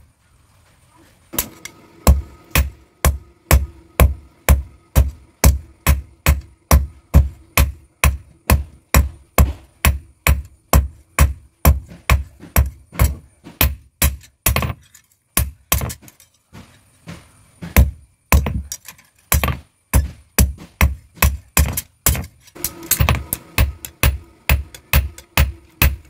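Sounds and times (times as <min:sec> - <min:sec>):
hammer striking blade on anvil: 0:21.7 - 0:26.0.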